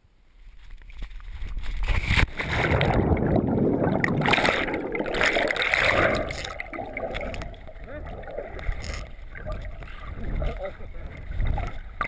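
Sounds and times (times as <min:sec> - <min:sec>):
splash into water: 0:01.4 - 0:07.5
churning and bubbling water: 0:01.5 - 0:12.0.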